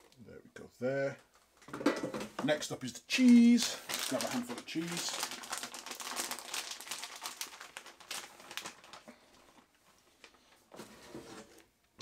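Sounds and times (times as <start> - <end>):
plastic bag crinkling: 3.1 - 11.6.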